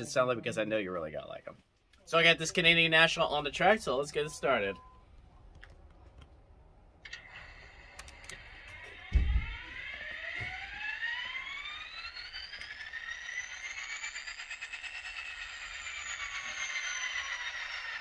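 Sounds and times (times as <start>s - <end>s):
rising whine: 2.1s - 18.0s
model locomotive engine start-up sound: 7.0s - 18.0s
low thump: 9.0s - 9.6s.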